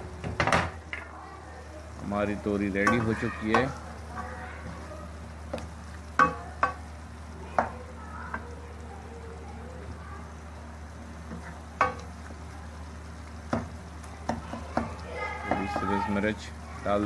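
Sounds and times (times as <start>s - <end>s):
spatula stirring sizzling food: 0.0s - 17.0s
spatula knocking against pan: 5.5s - 6.8s, 7.6s - 8.4s, 11.3s - 12.1s, 13.5s - 15.9s.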